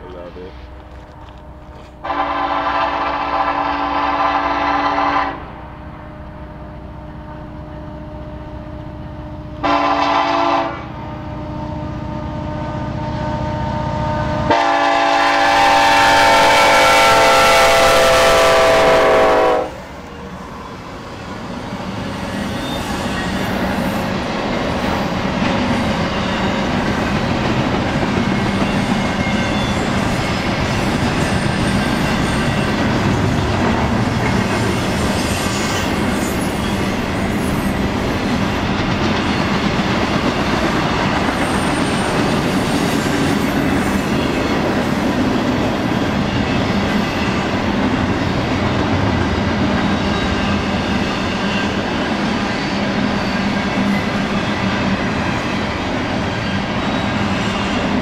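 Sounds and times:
train rumble and wheel clatter: 0.0s - 58.0s
train air horn blasts: 2.0s - 19.8s.

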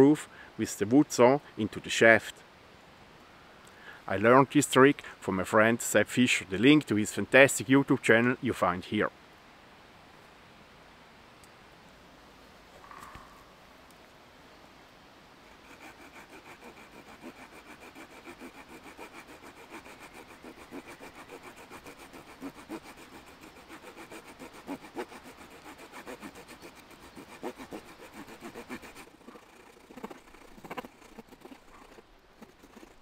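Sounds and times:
small saw cutting a branch: 15.5s - 33.0s.

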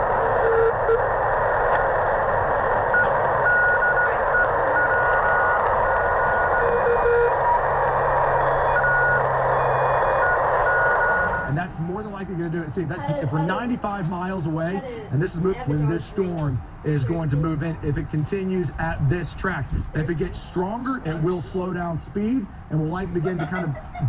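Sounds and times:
shortwave receiver hiss: 0.0s - 12.2s
morse code beeps: 0.2s - 1.0s, 2.9s - 7.4s, 8.3s - 11.5s.

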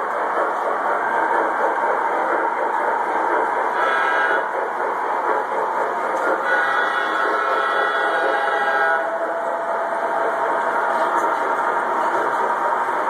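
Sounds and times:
model trains whirring on track: 0.0s - 13.0s
locomotive horn: 6.4s - 9.1s.

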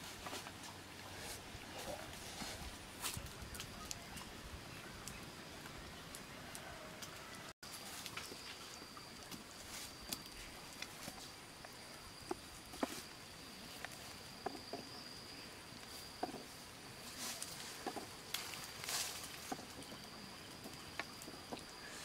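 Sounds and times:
bamboo poles clicking and knocking: 5.0s - 15.0s, 15.8s - 16.6s, 17.2s - 22.0s
high insect trill: 7.6s - 22.0s.

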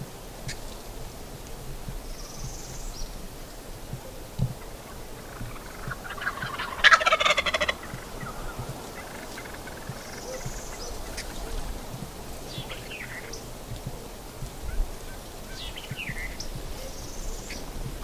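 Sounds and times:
faint songbird chirps: 2.1s - 3.2s, 7.4s - 11.8s, 14.6s - 17.8s
turkey gobbling: 4.0s - 14.1s.

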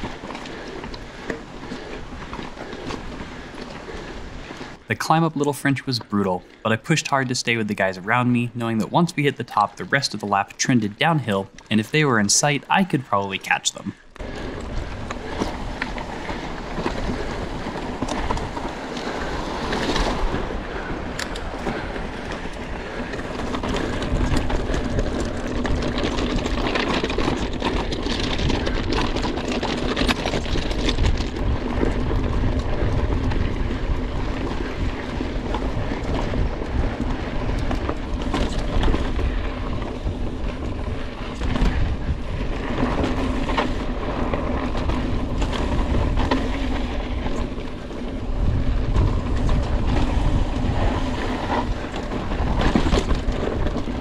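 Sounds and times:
bike rattling over ground: 0.0s - 5.0s, 7.0s - 54.0s
wind buffeting microphone: 14.2s - 54.0s.

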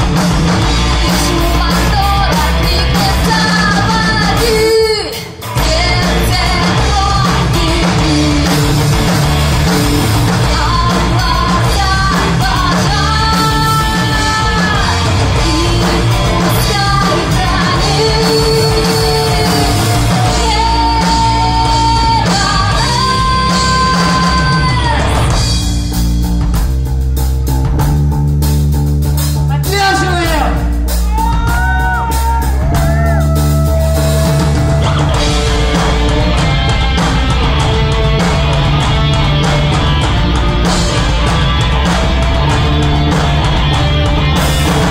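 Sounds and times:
bass: 0.0s - 44.9s
distorted electric guitars: 0.0s - 44.9s
drums: 0.0s - 44.9s
woman singing: 1.0s - 8.8s, 10.3s - 25.4s.

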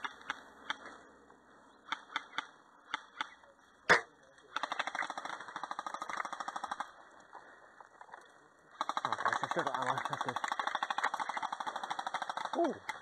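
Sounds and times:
airsoft gun firing bursts: 4.5s - 7.0s, 8.8s - 13.0s.

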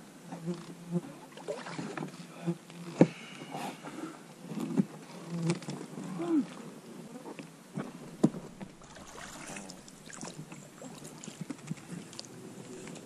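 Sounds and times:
oars knocking in inflatable boat: 7.8s - 10.7s.

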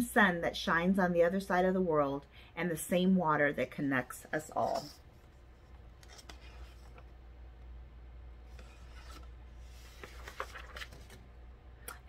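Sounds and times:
low room hum: 0.0s - 12.0s.

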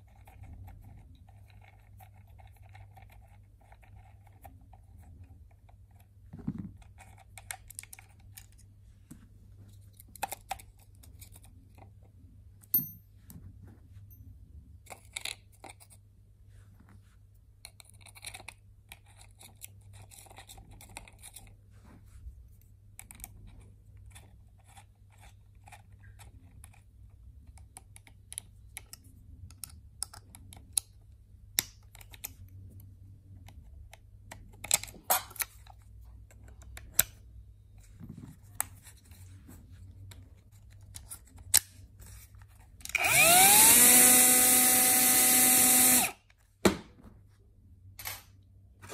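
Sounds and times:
angle grinder motor whine: 43.0s - 46.2s.

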